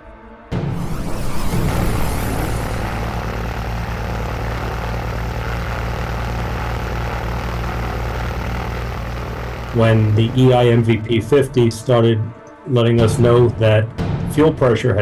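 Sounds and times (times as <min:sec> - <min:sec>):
propeller plane engine drone: 0:00.7 - 0:11.1.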